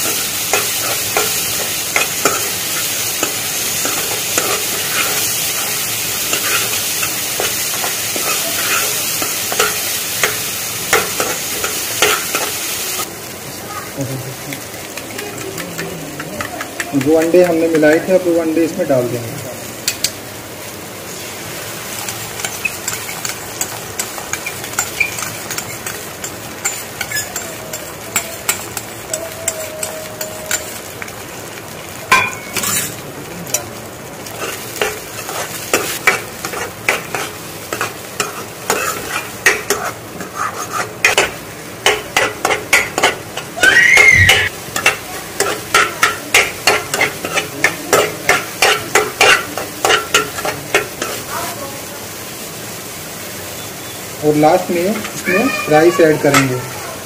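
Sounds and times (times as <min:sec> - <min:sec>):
metal spoon scraping and tapping pan: 0:00.0 - 0:12.6, 0:14.9 - 0:18.2, 0:21.9 - 0:31.1, 0:32.1 - 0:43.5, 0:44.2 - 0:51.2, 0:56.3 - 0:56.6
eggs sizzling in frying pan: 0:00.0 - 0:57.0
brief squeal: 0:43.6 - 0:44.5.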